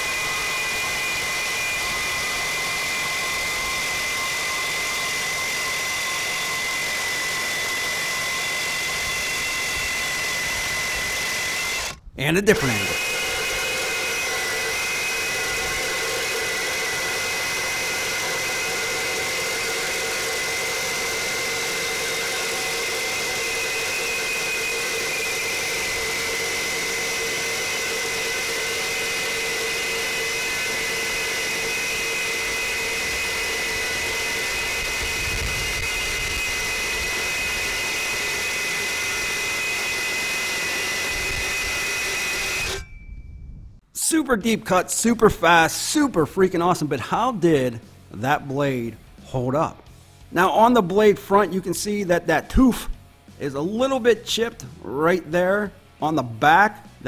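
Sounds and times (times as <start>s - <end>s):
reciprocating saw cutting steel: 0.0s - 43.0s.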